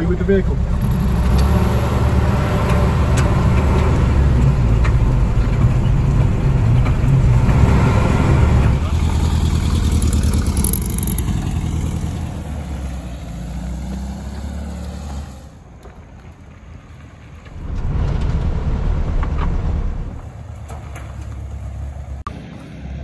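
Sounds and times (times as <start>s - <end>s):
car engine running up close: 0.0s - 15.8s
car engine pulling away: 0.0s - 23.0s.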